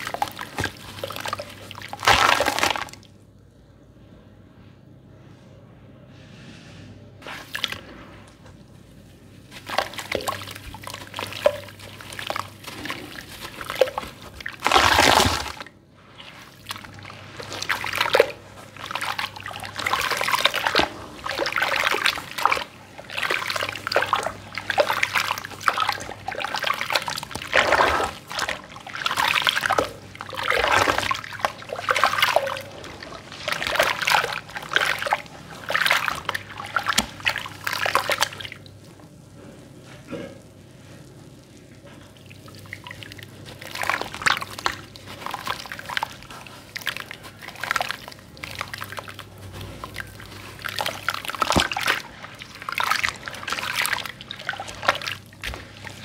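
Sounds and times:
hands squelching wet slurry: 0:00.0 - 0:03.2, 0:07.2 - 0:56.0
water splash: 0:09.5 - 0:38.6, 0:42.2 - 0:56.0.

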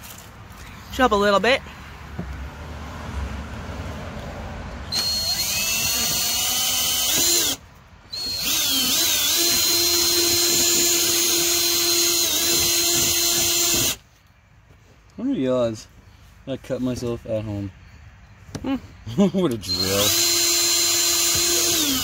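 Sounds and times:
cordless drill whining: 0:04.9 - 0:14.0, 0:19.6 - 0:22.0.

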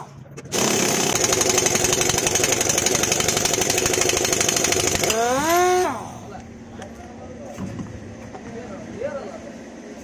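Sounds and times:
impact wrench hammering: 0:00.5 - 0:05.6
wrench running free whine: 0:00.5 - 0:05.9.

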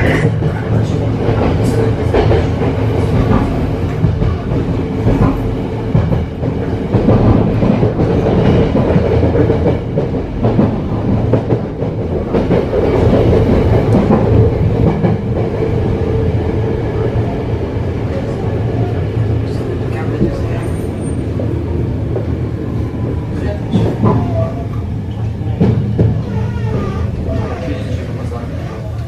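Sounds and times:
train wheels rumbling: 0:00.0 - 0:29.0.

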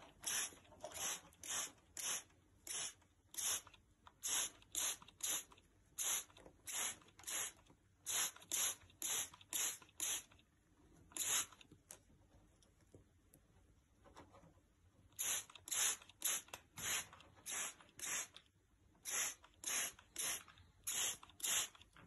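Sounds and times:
short hissing bursts: 0:00.2 - 0:10.4, 0:11.2 - 0:11.6, 0:15.2 - 0:18.4, 0:19.0 - 0:21.8.

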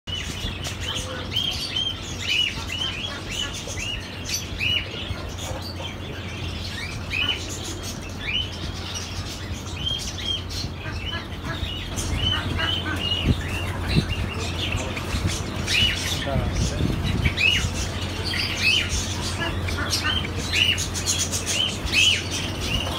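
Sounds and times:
sparrows chirping: 0:00.1 - 0:22.9
steady low hum: 0:00.1 - 0:22.9.

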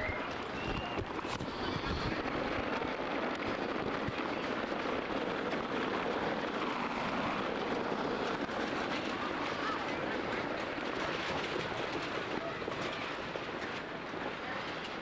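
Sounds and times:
gusty wind: 0:00.0 - 0:15.0.

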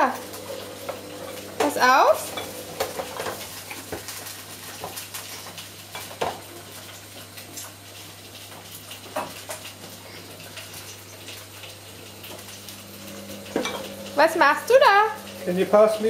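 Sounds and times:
glass jars clinking: 0:13.5 - 0:14.0.

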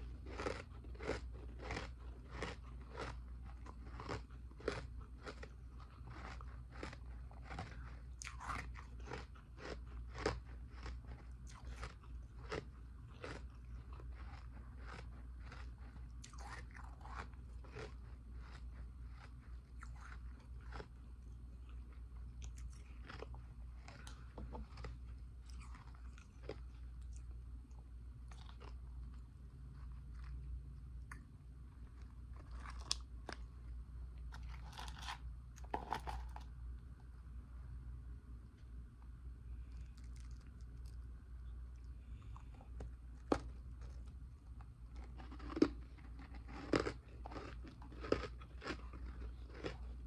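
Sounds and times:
person crunching ice: 0:34.3 - 0:36.4, 0:45.1 - 0:49.8.

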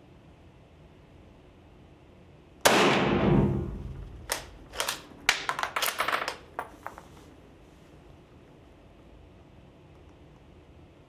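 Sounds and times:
rifle shot: 0:02.6 - 0:04.6.

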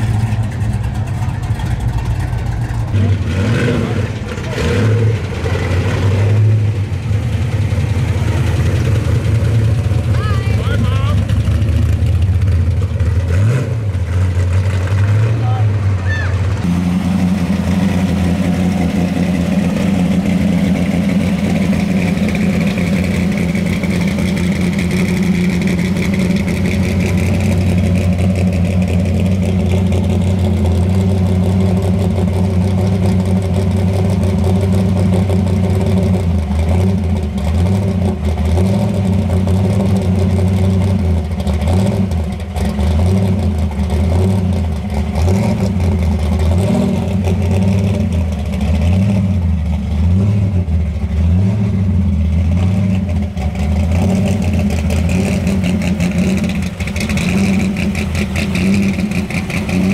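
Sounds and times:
car engine idling: 0:00.0 - 0:59.9.

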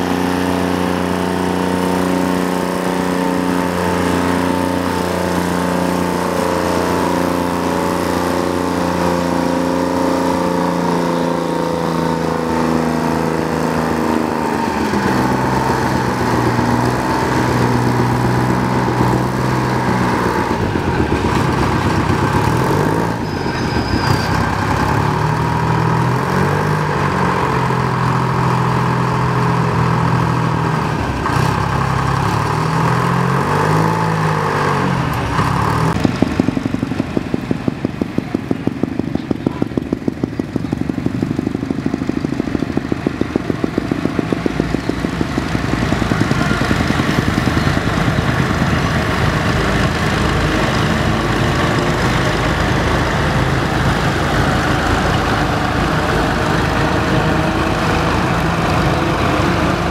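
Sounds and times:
large engine running: 0:00.0 - 0:59.9.

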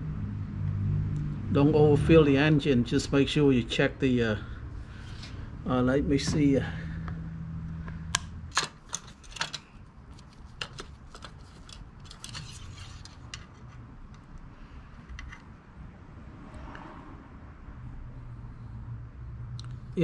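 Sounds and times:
plastic parts clicking: 0:08.1 - 0:14.4.

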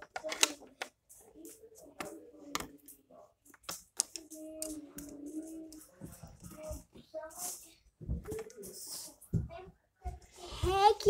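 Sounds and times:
plastic pens clicking and clattering: 0:00.0 - 0:06.4.

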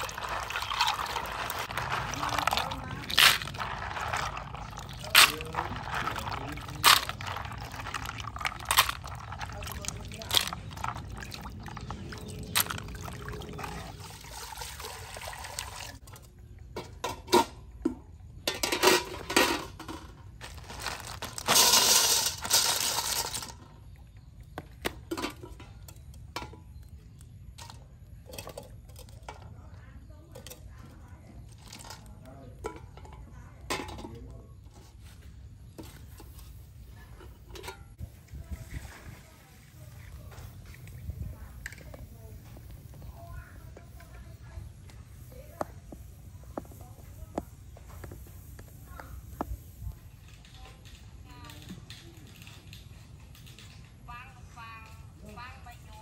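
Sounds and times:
hard items clinking against pot: 0:00.0 - 0:14.4, 0:16.0 - 0:23.9, 0:24.5 - 0:35.0, 0:35.6 - 0:38.1
water pouring and splashing: 0:00.0 - 0:16.2, 0:19.2 - 0:25.6, 0:35.0 - 0:51.0.

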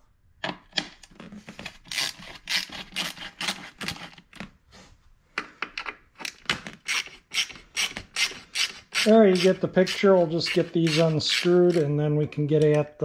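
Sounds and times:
ratcheting screwdriver clicking: 0:10.5 - 0:11.8.

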